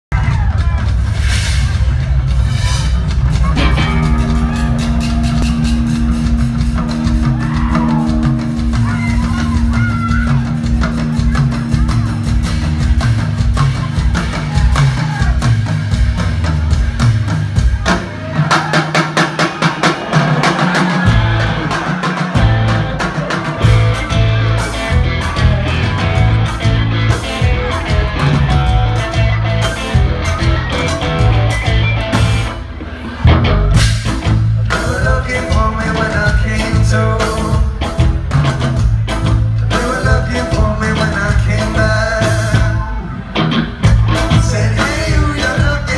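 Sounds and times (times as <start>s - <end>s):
bass guitar: 0.0s - 18.6s, 20.6s - 45.9s
drum kit: 0.1s - 45.9s
keyboard: 2.0s - 45.9s
electric guitar: 3.1s - 18.3s, 20.6s - 45.9s.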